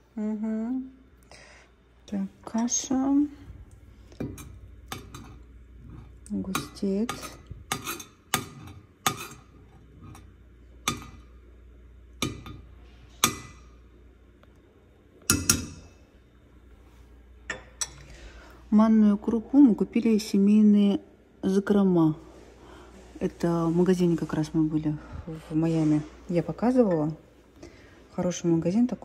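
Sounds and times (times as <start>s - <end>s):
spoon knocking against pot: 12.2s - 13.7s, 15.3s - 15.8s.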